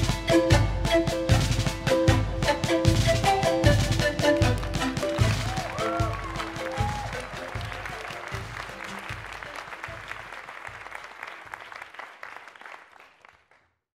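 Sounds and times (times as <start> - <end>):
audience clapping: 4.2 - 13.8.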